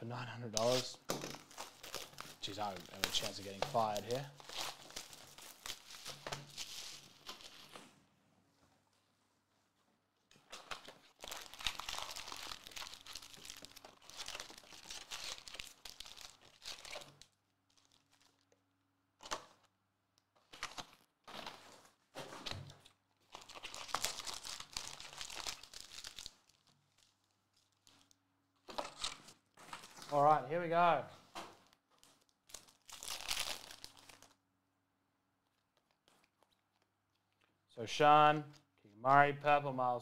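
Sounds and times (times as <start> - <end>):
foil packs crinkling: 0.6 - 7.8, 10.4 - 18.6, 20.4 - 30.2, 31.2 - 34.4.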